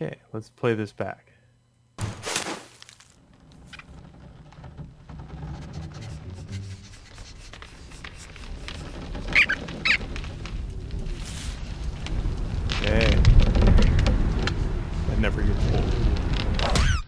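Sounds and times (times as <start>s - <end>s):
low rumbling ambience: 3.2s - 17.0s
cartoon rodent squeaks: 9.3s - 10.0s.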